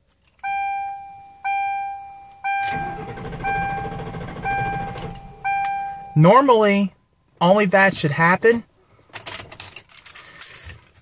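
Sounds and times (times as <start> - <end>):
dashboard warning chime: 0.4 - 6.5
starter cranking engine: 2.6 - 5.4.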